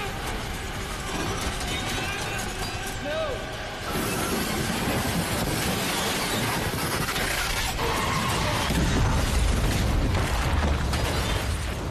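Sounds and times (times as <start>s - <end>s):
debris crashing and shattering: 0.0s - 11.9s.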